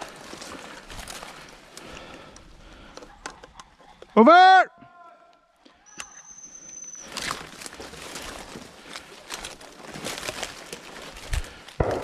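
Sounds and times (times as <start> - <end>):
footsteps through dry leaves and twigs: 0.0 - 2.2, 7.0 - 12.0
thin high whistle: 5.8 - 7.4.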